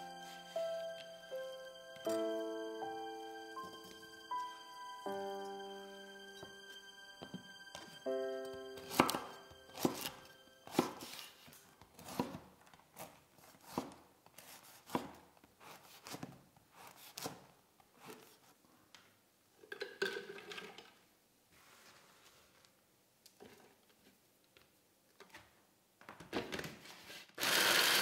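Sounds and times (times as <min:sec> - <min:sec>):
soft background music: 0:00.0 - 0:12.3
knife cutting bread on board: 0:08.8 - 0:09.2, 0:09.8 - 0:11.3, 0:13.0 - 0:18.3.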